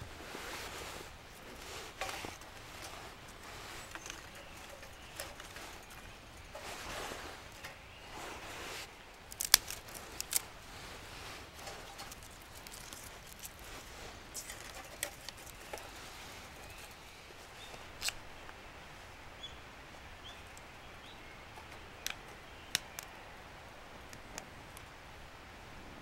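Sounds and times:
dry twigs rustling and clattering: 0.0 - 18.6, 21.5 - 23.2
twigs snapping: 9.1 - 10.7, 11.4 - 16.0, 17.7 - 18.6, 21.7 - 23.2.

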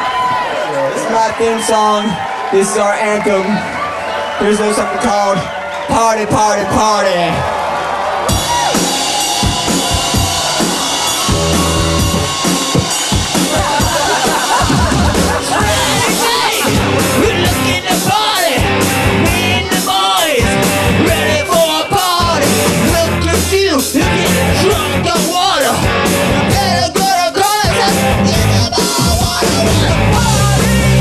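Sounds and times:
rock band playing: 0.0 - 31.0
person singing: 26.4 - 31.0.

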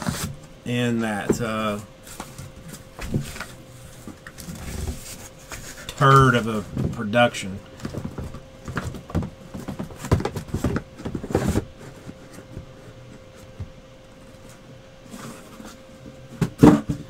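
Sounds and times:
faint steady hum: 0.0 - 17.0
cardboard scraping and knocking: 2.1 - 7.1, 7.8 - 13.7, 15.1 - 17.0.

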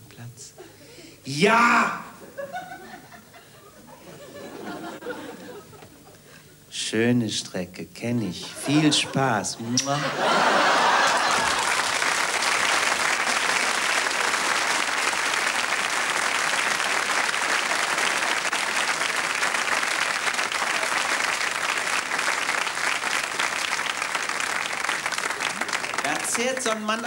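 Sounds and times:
audience laughter: 2.2 - 6.2, 8.4 - 12.6
audience applauding: 10.2 - 27.0.

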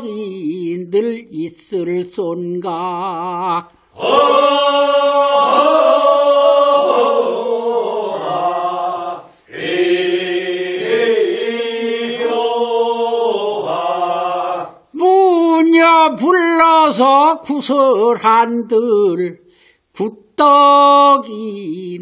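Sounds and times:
chorus of voices singing: 2.7 - 15.0.

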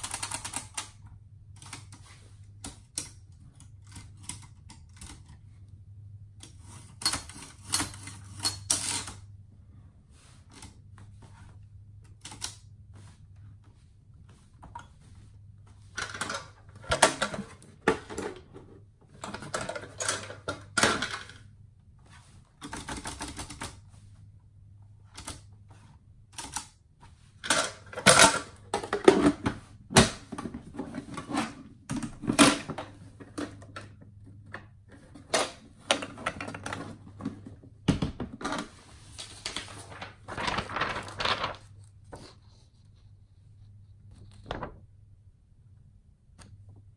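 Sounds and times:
typewriter clicks and rattles: 0.0 - 5.4, 6.4 - 9.2, 12.1 - 12.6, 22.6 - 23.8, 25.1 - 25.5, 26.3 - 26.8.

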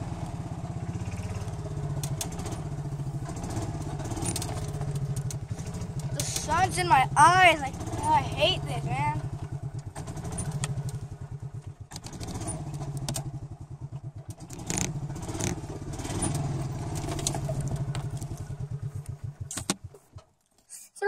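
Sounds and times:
golf cart engine throbbing: 0.0 - 20.3
cart clunks and rattles: 2.0 - 6.8, 14.2 - 18.5.

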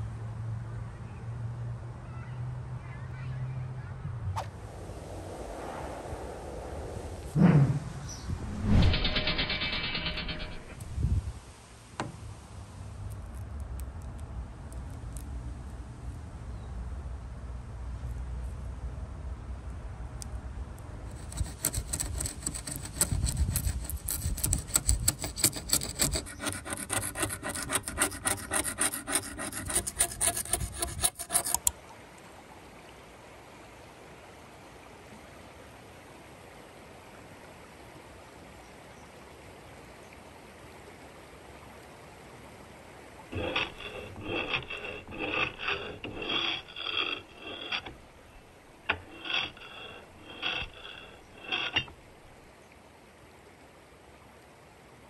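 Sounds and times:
blade scraping paint off wood: 21.1 - 31.7, 43.3 - 52.0.

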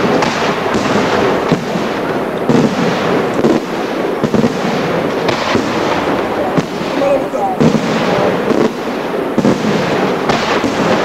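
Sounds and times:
fireworks bangs and crackling: 0.0 - 11.0.

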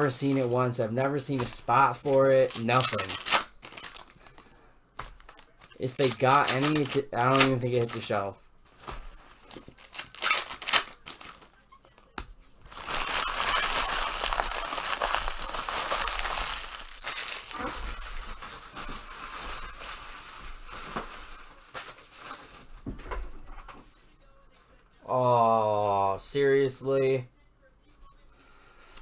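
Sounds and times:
card pack wrappers crinkling: 0.0 - 11.6, 12.6 - 22.7.

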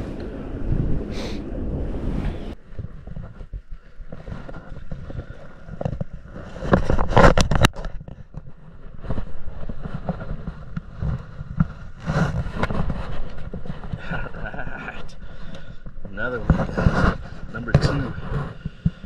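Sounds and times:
wind buffeting microphone: 0.0 - 7.8
rustling noise bursts: 8.8 - 14.6, 16.1 - 19.0.

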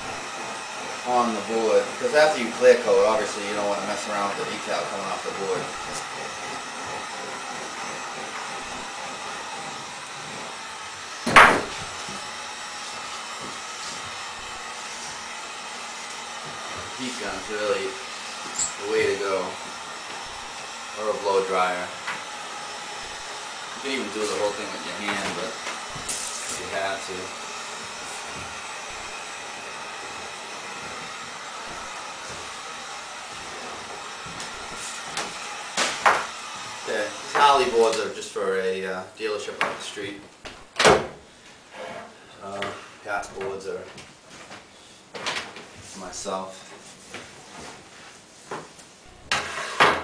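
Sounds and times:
heat gun blowing: 0.0 - 38.1
loud sharp knock: 11.3 - 11.8.

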